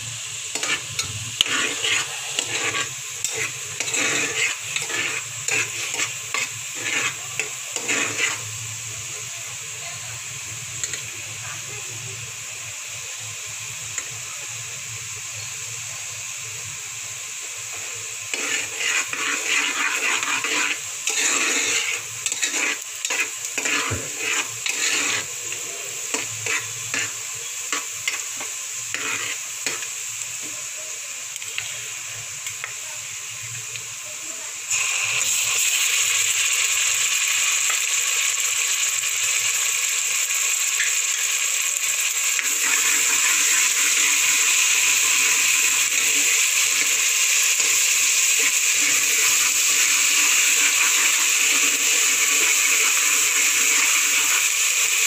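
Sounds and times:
onion sizzling in oil: 0:00.0 - 0:55.0
metal spoon scraping a pan: 0:00.5 - 0:08.6, 0:17.8 - 0:30.5, 0:42.4 - 0:54.4.

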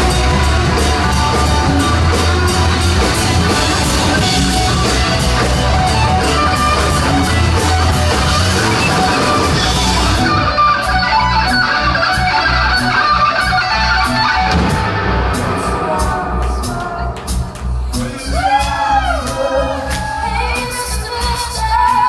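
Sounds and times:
live rock band playing: 0:00.0 - 0:22.0.

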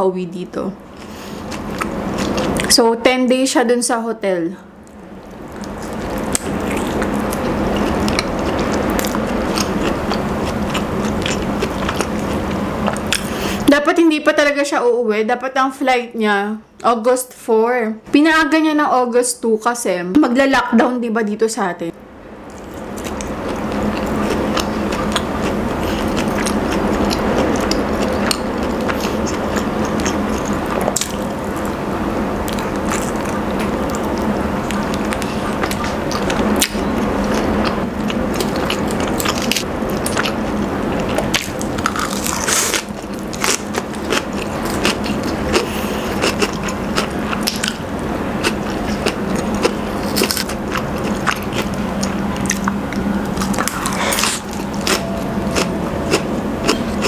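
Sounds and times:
close chewing with crackles: 0:00.9 - 0:02.8, 0:04.8 - 0:13.7, 0:22.5 - 0:31.8, 0:32.4 - 0:57.0.

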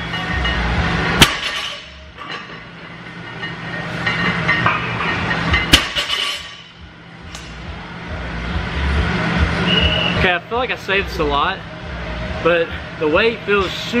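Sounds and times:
steady noisy background: 0:00.0 - 0:14.0.

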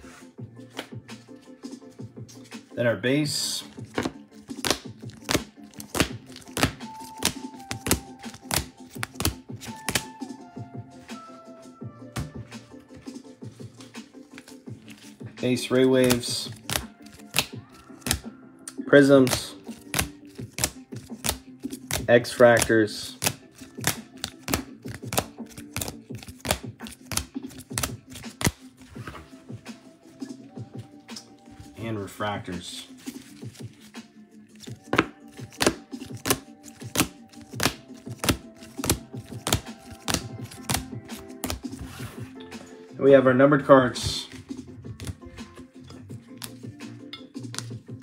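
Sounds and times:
soft background music: 0:00.0 - 0:48.0
plastic card cases clacking: 0:03.8 - 0:10.1, 0:15.7 - 0:18.2, 0:19.2 - 0:29.2, 0:34.6 - 0:41.8, 0:46.3 - 0:46.7.

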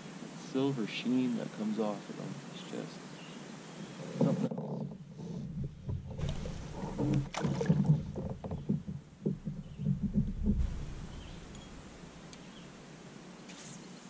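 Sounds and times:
knocks against kayak hull: 0:04.2 - 0:12.2.

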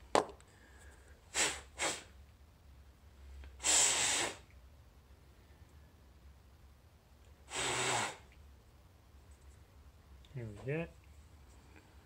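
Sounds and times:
breath blown through valve: 0:01.3 - 0:02.2, 0:03.6 - 0:04.5, 0:07.4 - 0:08.3.

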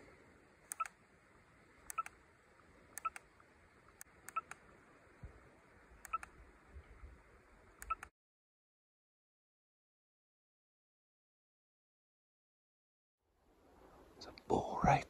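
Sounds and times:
short electronic beeps: 0:07.8 - 0:08.1.

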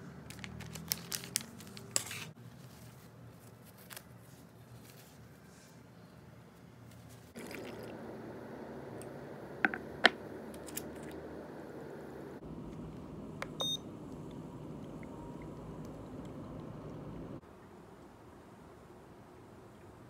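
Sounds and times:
steady noise: 0:07.4 - 0:17.4
short electronic beep: 0:13.6 - 0:13.8.

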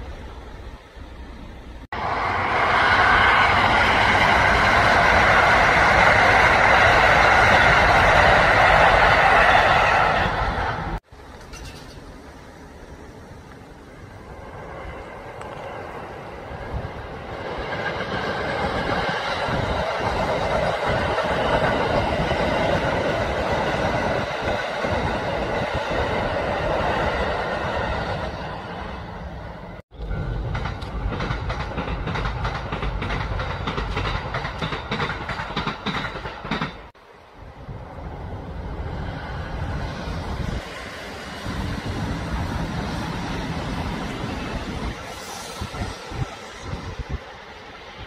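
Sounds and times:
train wheels rumbling on rails: 0:00.0 - 0:48.0
wheels clicking over rail joints: 0:10.9 - 0:14.6, 0:29.9 - 0:37.0.

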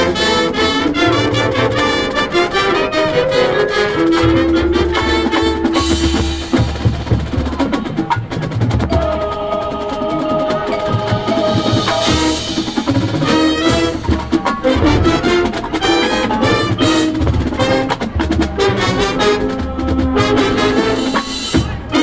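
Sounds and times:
drum strikes: 0:00.0 - 0:22.0
marching band brass chords: 0:00.0 - 0:22.0
heavy bass drum hits: 0:04.2 - 0:07.6.

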